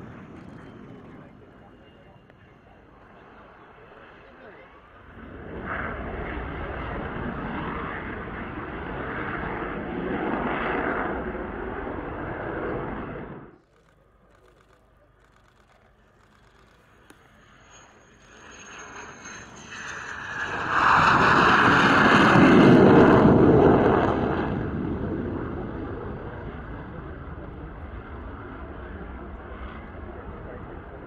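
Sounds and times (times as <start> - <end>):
jet fighter passing low: 0.0 - 13.6, 16.0 - 31.0.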